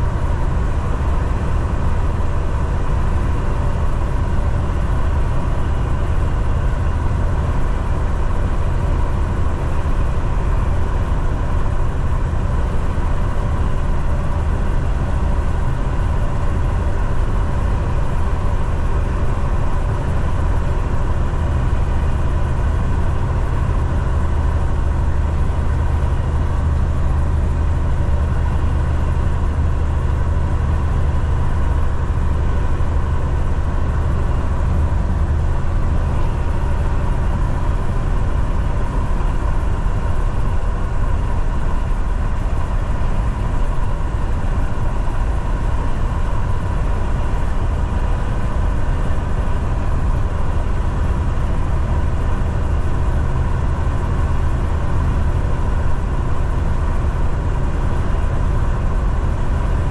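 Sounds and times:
truck engine and road noise: 0.0 - 59.9.

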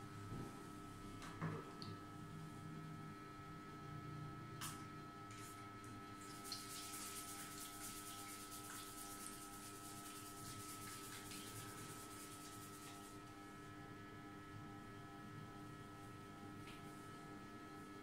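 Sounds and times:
faint electrical hum: 0.0 - 18.0
fingers rubbing scalp through hair: 6.4 - 13.2.

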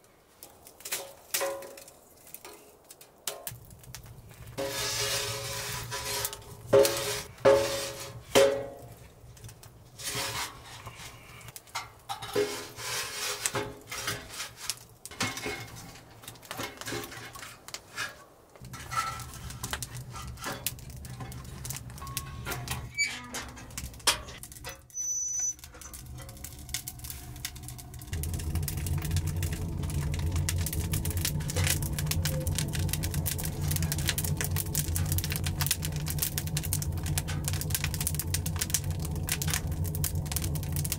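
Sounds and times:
steady low hum: 25.6 - 40.9.

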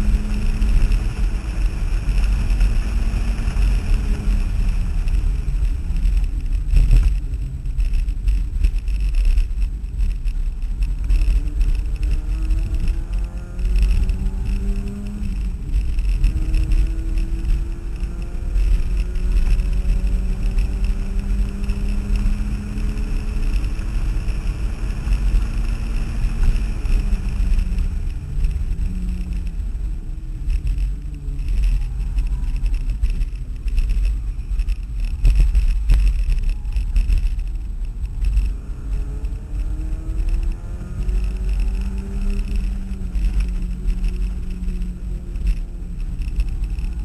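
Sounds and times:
car engine revving: 0.0 - 47.0
road and wind rumble: 0.0 - 47.0.

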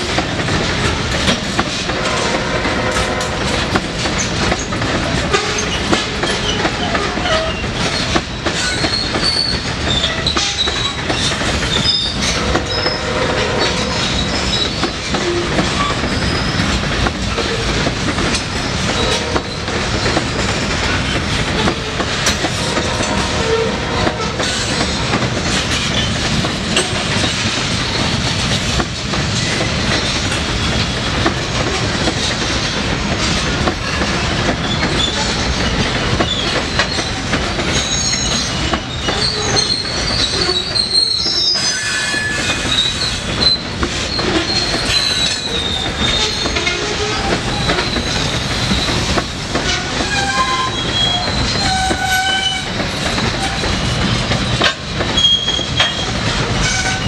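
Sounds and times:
freight train rumbling: 0.0 - 57.0
wheels clacking over rail joints: 0.0 - 57.0
wheel squeals: 5.3 - 16.8, 34.6 - 57.0.

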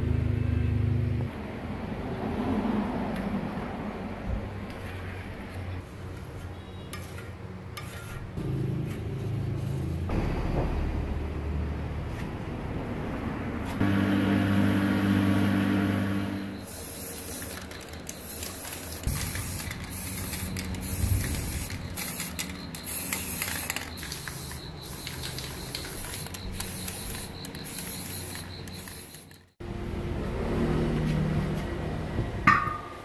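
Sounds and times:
spray-paint can hissing: 16.6 - 29.5.

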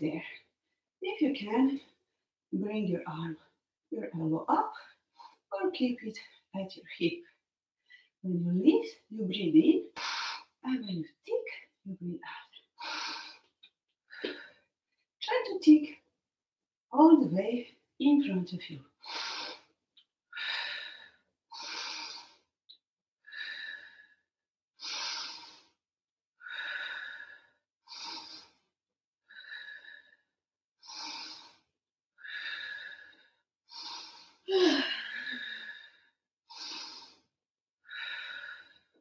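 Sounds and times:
woman breathing forcefully: 19.0 - 19.7, 20.4 - 22.5, 23.3 - 24.2, 24.8 - 25.8, 26.4 - 28.6, 29.3 - 30.2, 30.8 - 37.3, 37.9 - 39.0.

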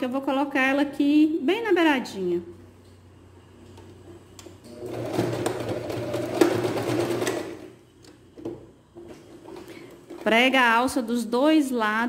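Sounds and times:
electric sewing machine stitching: 4.7 - 7.8.

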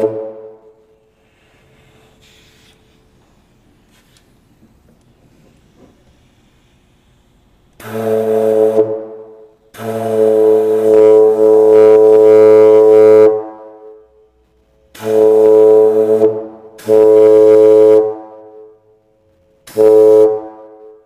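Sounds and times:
plastic air horn blasts: 0.0 - 1.1, 7.8 - 14.2, 14.9 - 18.9, 19.6 - 21.0.

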